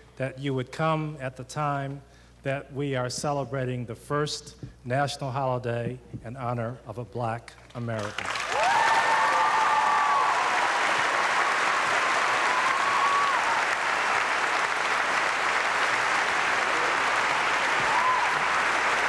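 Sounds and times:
large audience applauding: 8.0 - 19.0.

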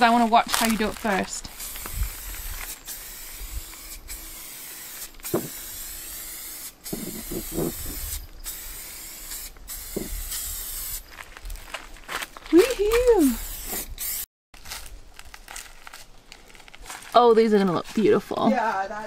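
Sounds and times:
aerosol spray can hissing: 1.5 - 11.1, 13.0 - 14.3.

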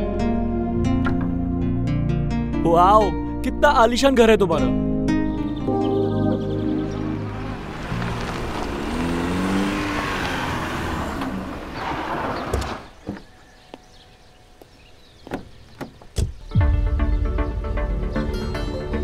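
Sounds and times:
car engine running: 7.0 - 12.9
car door clicks: 15.2 - 16.4.

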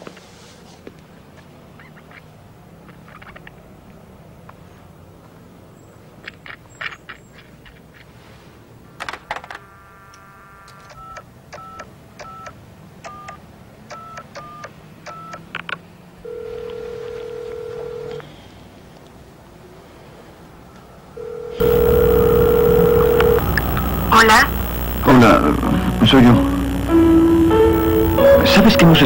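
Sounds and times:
phone ringing tone: 16.2 - 18.2, 21.2 - 29.0
touch-tone beeps: 21.6 - 25.3, 26.3 - 29.0.

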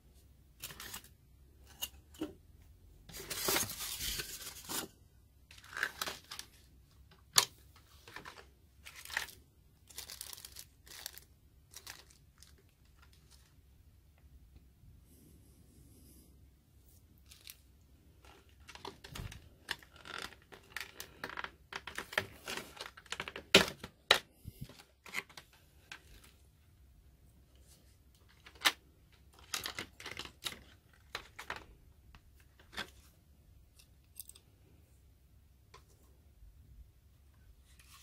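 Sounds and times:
plastic packaging crackling: 5.5 - 6.7, 7.3 - 13.5, 17.2 - 26.3, 28.3 - 31.7.

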